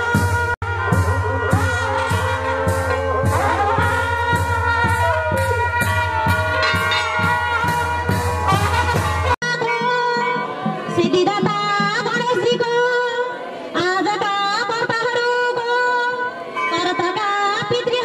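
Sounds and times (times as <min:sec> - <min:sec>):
brass melody over a beat: 0:00.0 - 0:12.2.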